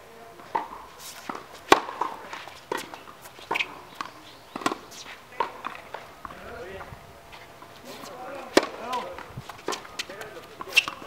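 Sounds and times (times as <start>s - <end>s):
racket striking tennis ball: 0.4s - 6.4s, 7.6s - 11.0s
tennis ball bouncing: 0.4s - 11.0s.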